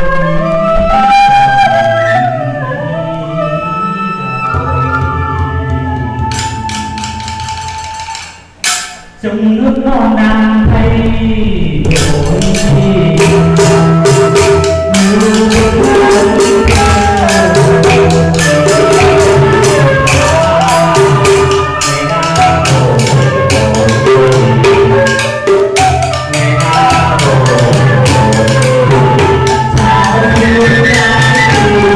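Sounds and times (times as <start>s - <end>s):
bamboo flute: 0.0s - 8.9s, 12.0s - 31.9s
small drum beat: 4.8s - 9.2s, 10.6s - 31.9s
wooden clappers tapping: 6.3s - 9.0s
man singing: 9.2s - 31.9s.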